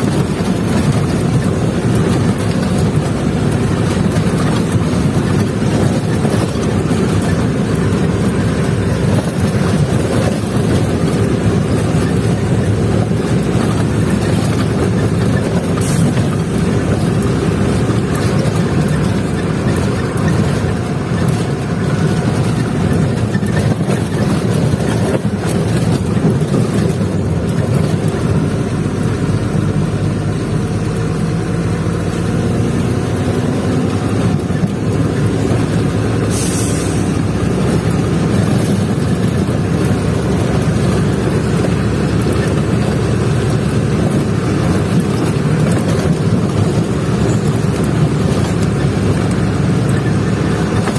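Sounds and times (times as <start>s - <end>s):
truck engine running: 0.0s - 50.9s
brief air hiss: 36.3s - 37.2s.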